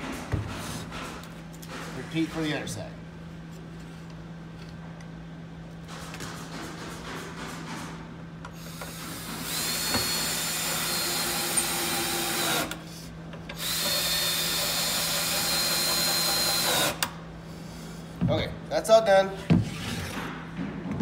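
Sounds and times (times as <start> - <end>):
cordless drill driving screws: 8.7 - 12.8, 13.6 - 17.1.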